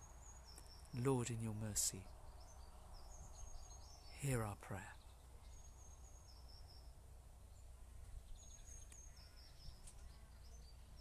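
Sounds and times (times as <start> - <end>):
songbird singing: 0.0 - 11.0.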